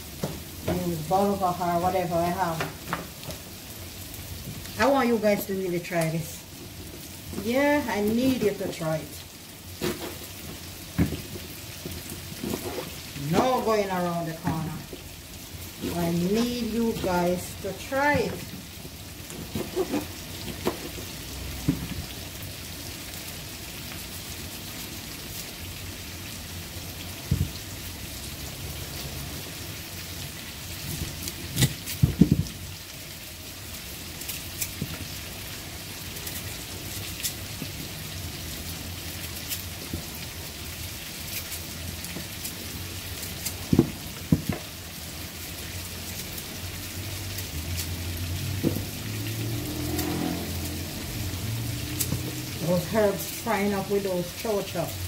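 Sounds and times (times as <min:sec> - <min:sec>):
vegetables sizzling in a frying pan: 0:00.0 - 0:55.0.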